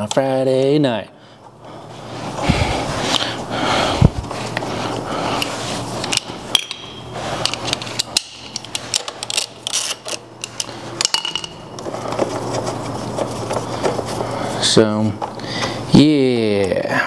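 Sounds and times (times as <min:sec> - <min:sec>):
metal tools clinking and tapping: 0:06.1 - 0:07.0, 0:10.4 - 0:11.6.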